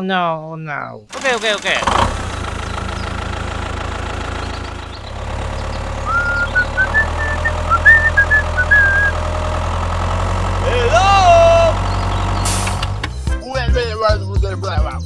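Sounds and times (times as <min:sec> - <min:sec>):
tractor engine chugging: 0:01.1 - 0:13.2
short high chirps: 0:06.1 - 0:09.2.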